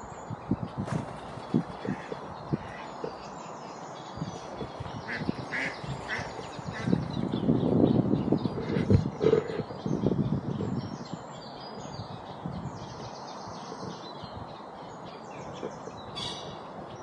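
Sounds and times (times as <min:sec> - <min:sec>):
small birds chirping: 0:00.0 - 0:17.0
steady outdoor hiss: 0:00.0 - 0:17.0
duck quacking: 0:05.1 - 0:06.9.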